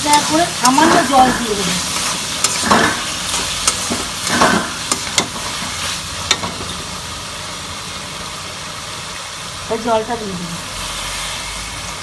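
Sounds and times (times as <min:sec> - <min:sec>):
steel spatula scraping a wok: 0:00.0 - 0:06.0
food sizzling in oil in a wok: 0:00.0 - 0:12.0.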